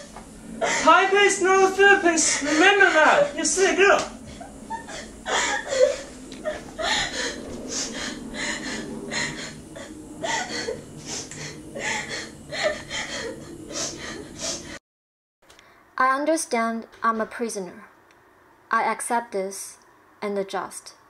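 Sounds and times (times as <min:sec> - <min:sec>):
woman sobbing: 0:00.6 - 0:01.0, 0:02.2 - 0:03.4, 0:04.3 - 0:14.8.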